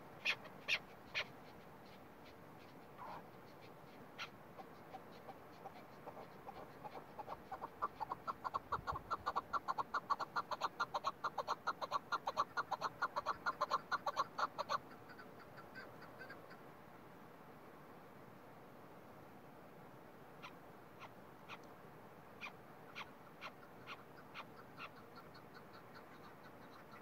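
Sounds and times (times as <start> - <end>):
partridge clucking calls: 0.0 - 16.6, 20.4 - 21.7, 22.4 - 27.0.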